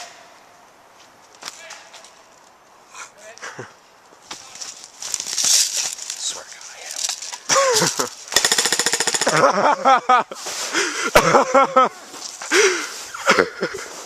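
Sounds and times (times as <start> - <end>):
airsoft gun full-auto burst: 8.3 - 9.4.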